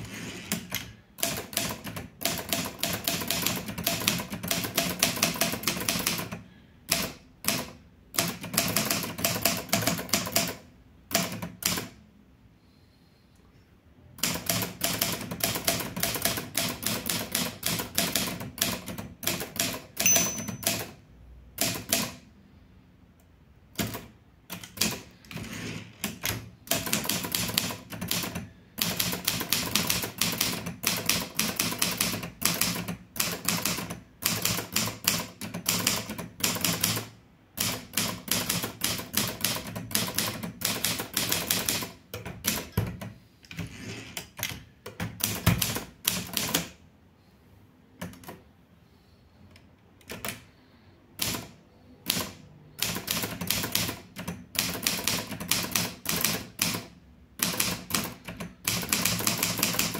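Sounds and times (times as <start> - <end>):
typewriter key strikes: 14.2 - 21.0.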